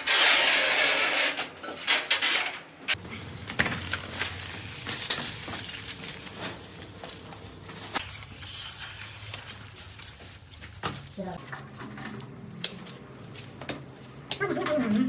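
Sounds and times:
footsteps on foil film: 3.0s - 11.4s.

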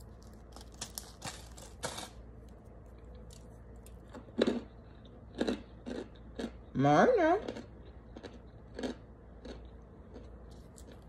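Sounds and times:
plastic crinkling and snapping: 0.0s - 2.2s
crunchy cracks: 0.0s - 6.6s, 7.5s - 11.0s.

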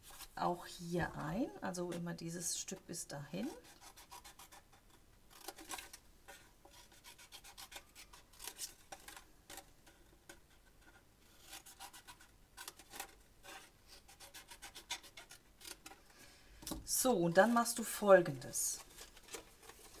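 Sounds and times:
paper rustling and snipping: 18.8s - 20.0s.

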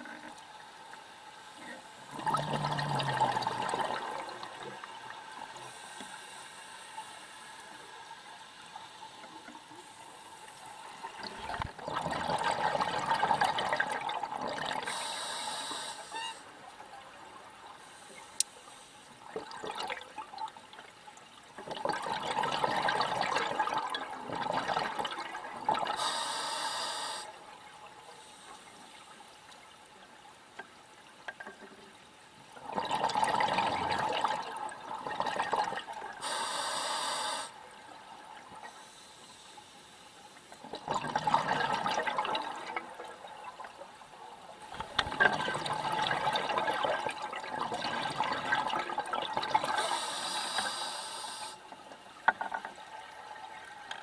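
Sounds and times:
bubbling exhalations underwater: 2.1s - 4.6s
regulator hissing inhalation: 14.9s - 16.4s, 26.0s - 27.3s, 36.2s - 37.6s, 49.8s - 51.6s.

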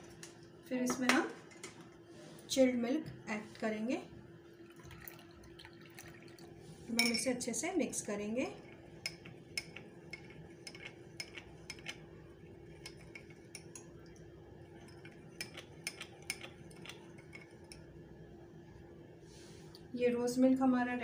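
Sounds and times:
faint steady hum: 0.0s - 21.0s
spoon clinking in glass: 7.0s - 7.3s.

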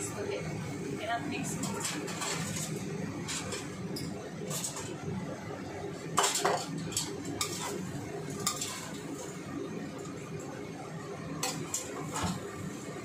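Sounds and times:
utensils scraping a metal wok: 1.5s - 3.8s, 4.4s - 5.0s, 6.2s - 9.1s.

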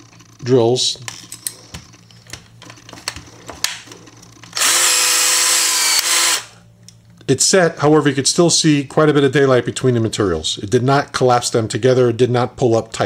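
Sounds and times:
cordless drill running: 4.5s - 6.6s.

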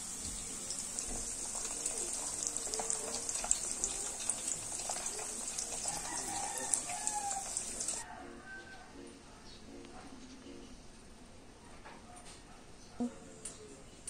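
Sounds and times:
food sizzling in hot oil: 0.0s - 8.0s.

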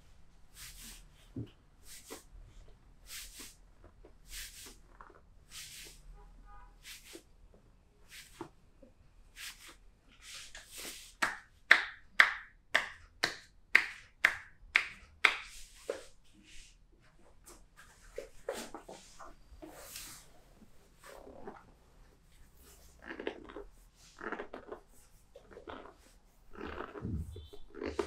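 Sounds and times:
hands clapping on back: 11.1s - 15.7s.

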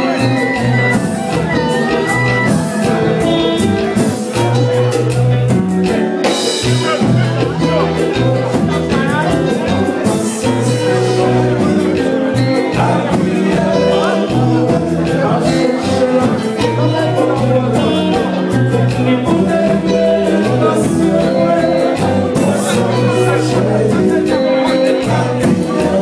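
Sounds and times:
live band playing: 0.0s - 26.0s
man singing into a microphone: 6.4s - 26.0s.

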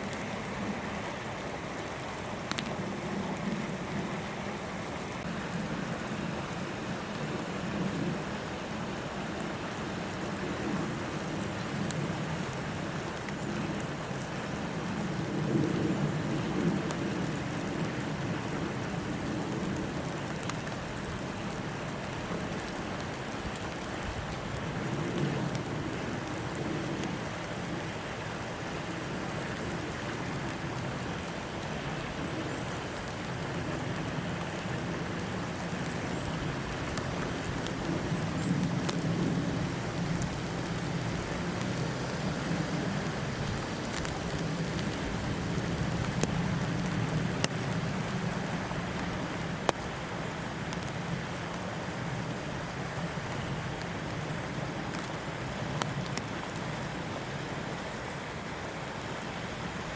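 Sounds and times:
hiss of falling precipitation: 0.0s - 59.9s
faint ticks: 2.4s - 2.7s.

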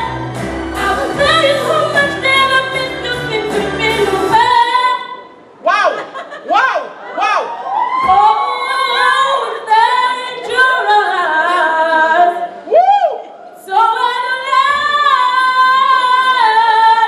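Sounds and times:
boy singing into microphone: 8.1s - 12.6s, 13.6s - 17.0s.

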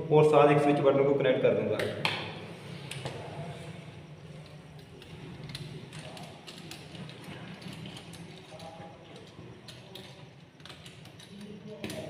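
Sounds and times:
wire clicking and scraping: 2.8s - 12.0s.

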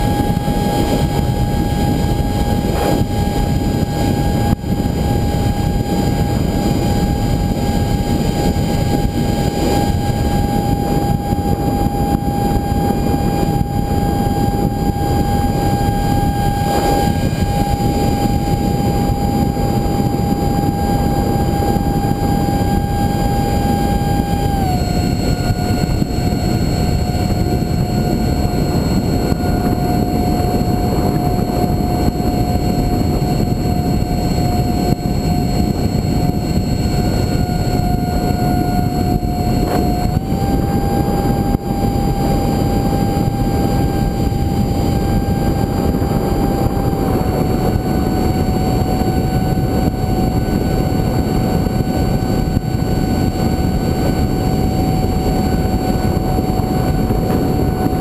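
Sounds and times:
electric ducted fan whining: 0.0s - 58.0s
wind noise: 0.0s - 58.0s.

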